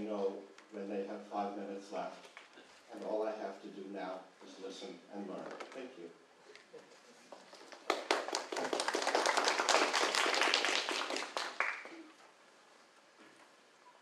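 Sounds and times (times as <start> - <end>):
audience applauding: 7.6 - 12.2.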